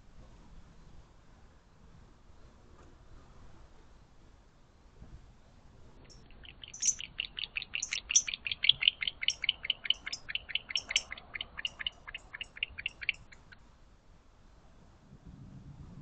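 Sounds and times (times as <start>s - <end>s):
owl chittering call: 6.1s - 13.6s.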